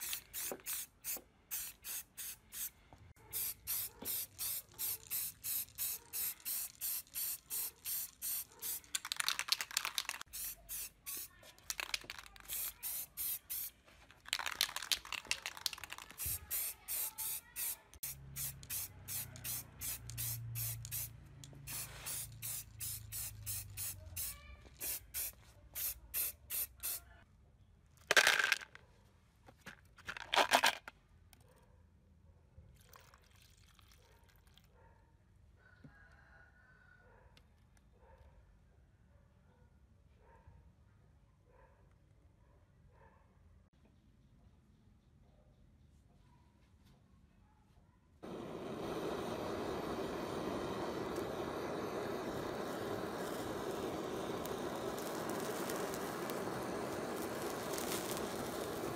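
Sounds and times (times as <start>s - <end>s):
aerosol spray can spraying: 0.0s - 27.0s, 48.2s - 58.9s.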